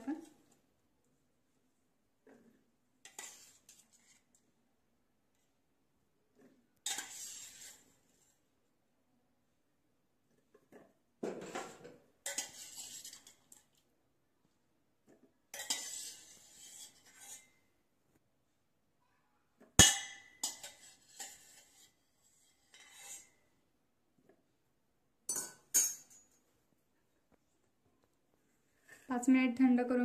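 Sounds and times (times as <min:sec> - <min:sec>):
spoon scraping metal pot: 0:02.3 - 0:04.4, 0:06.4 - 0:08.4, 0:11.4 - 0:13.8, 0:15.5 - 0:17.6, 0:20.2 - 0:23.4.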